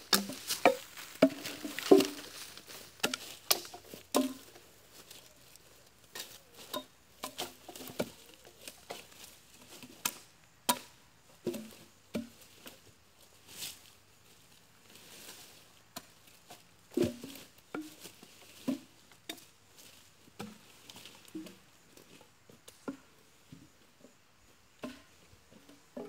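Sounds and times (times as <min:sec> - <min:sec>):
footsteps crunching dry leaves: 0:00.0 - 0:06.8, 0:12.3 - 0:22.2.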